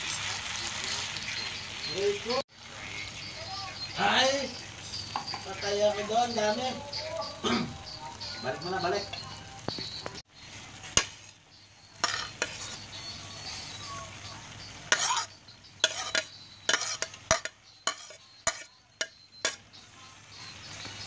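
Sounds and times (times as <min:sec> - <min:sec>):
faint sizzle: 0:00.0 - 0:21.0
spoon clinking on plate and pan: 0:04.4 - 0:10.2, 0:10.8 - 0:13.8, 0:14.6 - 0:19.8
metal spoon scraping plate: 0:12.0 - 0:12.9, 0:14.9 - 0:19.6.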